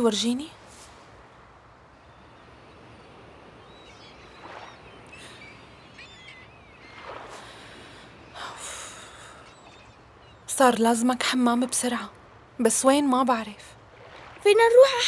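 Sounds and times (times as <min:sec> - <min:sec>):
faint bird chirps: 0:01.9 - 0:11.9.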